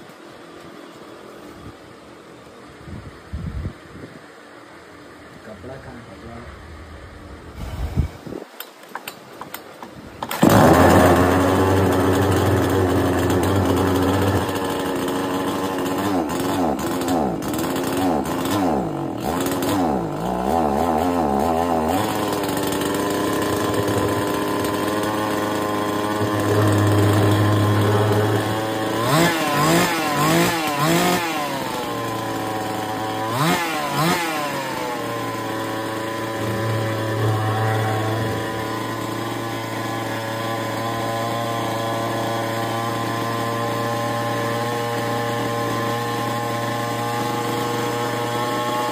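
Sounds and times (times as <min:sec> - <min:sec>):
chainsaw engine revving: 0:10.3 - 0:48.9.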